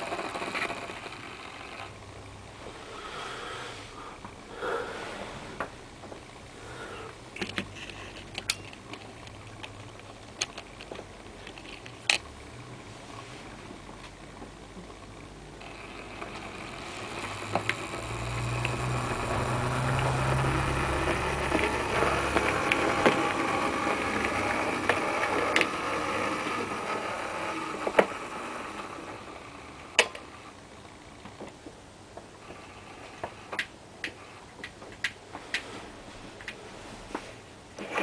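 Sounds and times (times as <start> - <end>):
model train motor humming: 0.0 - 2.0, 15.6 - 31.0.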